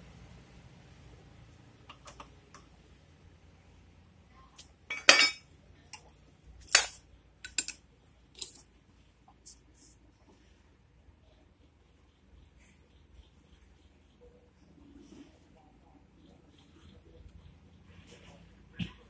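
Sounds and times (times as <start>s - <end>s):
metal hand tools clinking: 4.9s - 5.4s, 6.6s - 7.8s, 8.4s - 8.6s.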